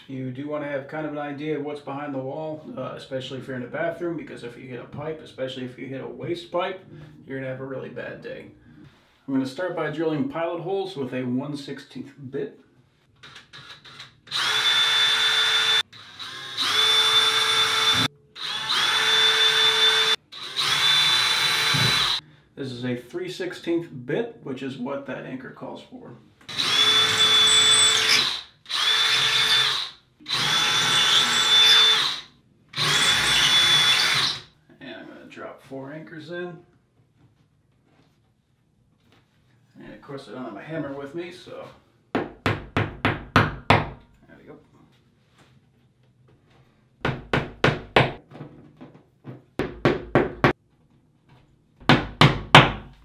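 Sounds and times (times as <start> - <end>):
cordless drill whining: 13.2 - 22.2, 26.5 - 34.5.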